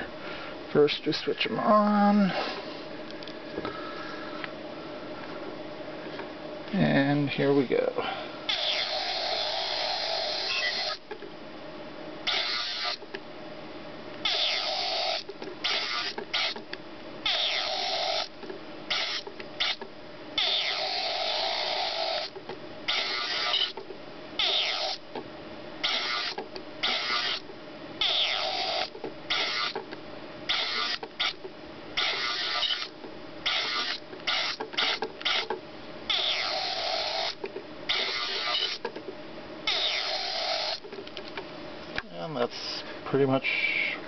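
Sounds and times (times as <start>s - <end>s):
small geared motor whirring: 8.5s - 11.0s, 12.3s - 13.0s, 14.2s - 16.6s, 17.2s - 18.3s, 18.9s - 23.8s, 24.4s - 25.0s, 25.8s - 29.8s, 30.5s - 31.4s, 32.0s - 38.9s, 39.6s - 40.9s.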